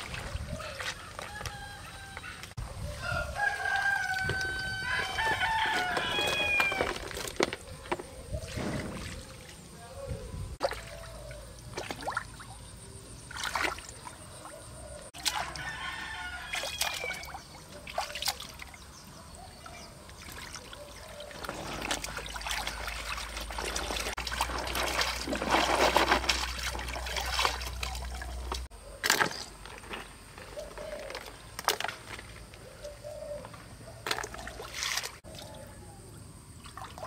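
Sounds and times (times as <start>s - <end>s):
water trickling and sloshing: 0.0s - 1.5s, 3.5s - 33.1s, 33.9s - 37.0s
small water splashes: 10.6s - 29.4s, 34.0s - 35.7s, 36.6s - 37.0s.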